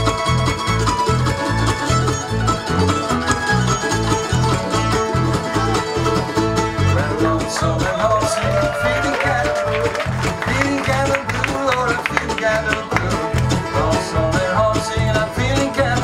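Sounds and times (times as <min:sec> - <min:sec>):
acoustic guitar picking: 0:00.0 - 0:16.0
banjo picking: 0:00.0 - 0:16.0
fiddle: 0:00.0 - 0:16.0
mandolins: 0:00.0 - 0:16.0
upright bass: 0:00.0 - 0:16.0
person singing: 0:06.7 - 0:16.0.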